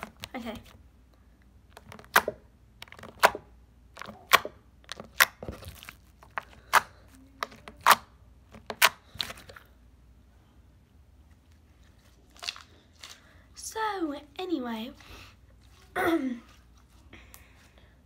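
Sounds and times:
sticky slime popping: 1.7 - 9.5.

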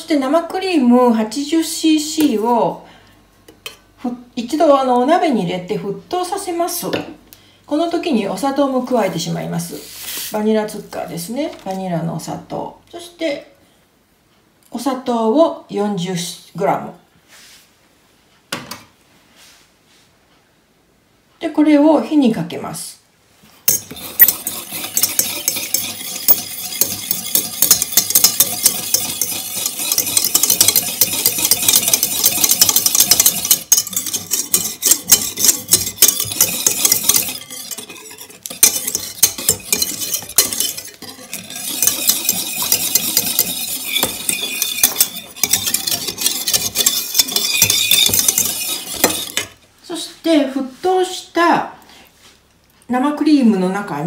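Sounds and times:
whisk scraping metal pan: 23.7 - 49.6.

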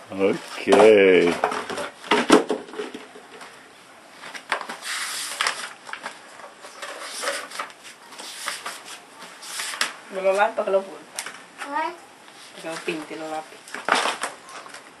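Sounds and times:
pages turning: 4.2 - 10.0
paper rustling: 4.2 - 10.4.

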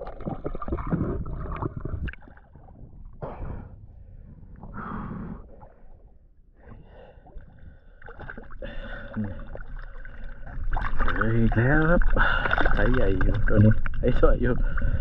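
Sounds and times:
water splashing: 0.0 - 2.7, 7.9 - 15.0
diver breathing hard: 3.2 - 8.0.

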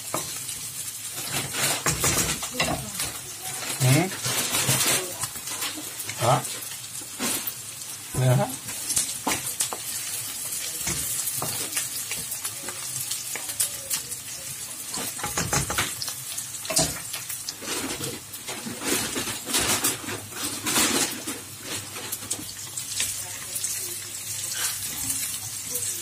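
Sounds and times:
food sizzling in hot oil: 0.0 - 26.0
wooden spatula scraping pan: 1.2 - 6.2.

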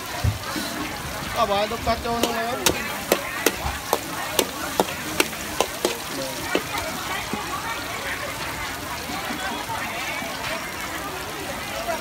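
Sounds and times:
food sizzling: 0.0 - 12.0
sharp taps: 2.2 - 6.8.

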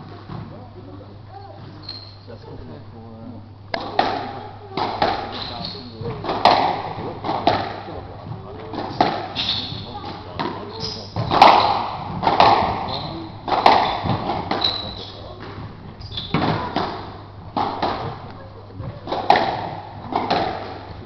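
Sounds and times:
shoes squeaking on wooden floor: 1.3 - 2.3, 5.0 - 7.2, 8.4 - 21.0
squash ball hits: 3.7 - 21.0.

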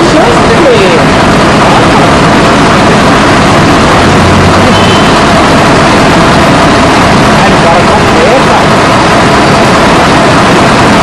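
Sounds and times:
heavy diesel engine running: 0.0 - 11.0.

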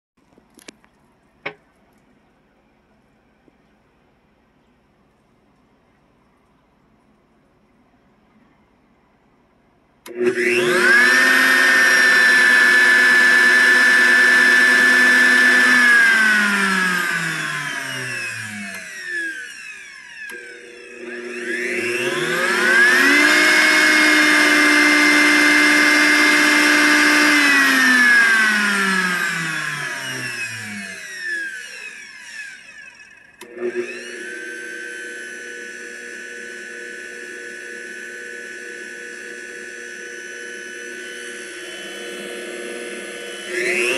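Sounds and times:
quiet steady hum: 0.2 - 10.1
click: 0.3 - 2.1, 10.0 - 10.4, 18.7 - 18.9, 20.2 - 20.4, 33.4 - 33.6
blender motor whining: 10.0 - 43.9.

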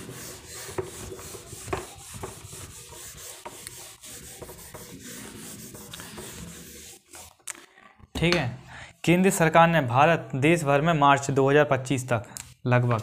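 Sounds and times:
soft rubbing and scraping: 0.0 - 7.4.

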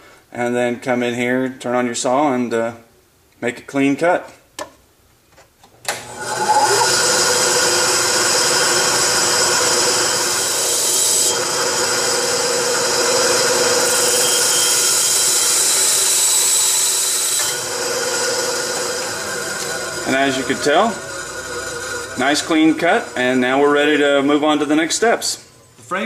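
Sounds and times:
bandsaw cutting metal: 6.0 - 25.0.

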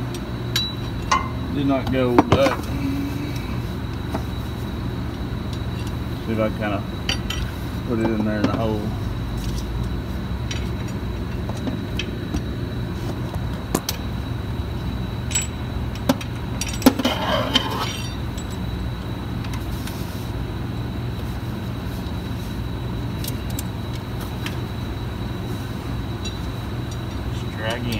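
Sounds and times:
low hum: 0.0 - 27.9
ringing clinks: 0.5 - 2.7, 15.3 - 18.7, 26.2 - 27.9.

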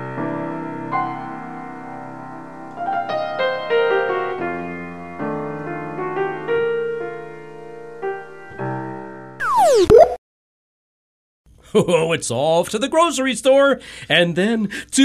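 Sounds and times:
piano music: 0.0 - 10.1.

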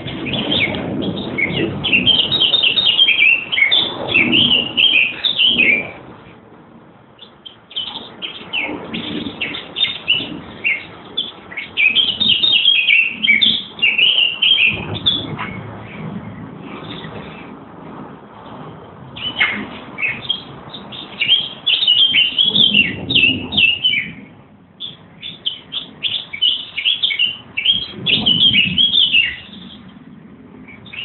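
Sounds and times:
songbirds singing: 0.0 - 6.4, 7.1 - 17.6, 18.5 - 31.0
low rumble: 14.6 - 21.2.

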